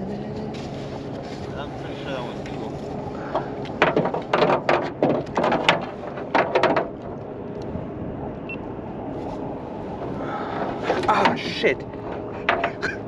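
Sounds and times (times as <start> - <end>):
steady low hum: 0.0 - 13.0
clattering knocks: 3.3 - 7.1, 10.9 - 13.0.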